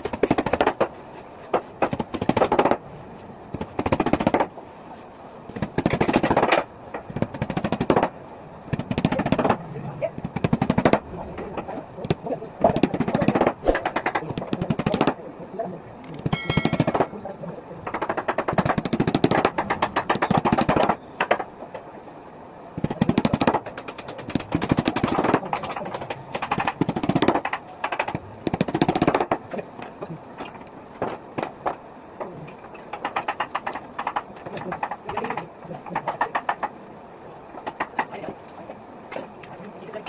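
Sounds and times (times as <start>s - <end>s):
hammer tapping small nails: 1.5s - 2.8s, 5.6s - 8.1s, 16.0s - 17.1s, 22.8s - 29.9s, 32.5s - 36.7s.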